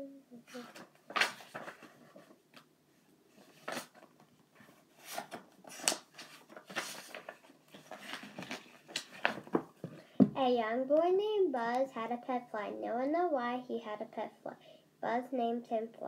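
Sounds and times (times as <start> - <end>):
book pages rustling: 0.5 - 2.7, 3.3 - 10.3
soft knocks of book handling: 6.6 - 10.4.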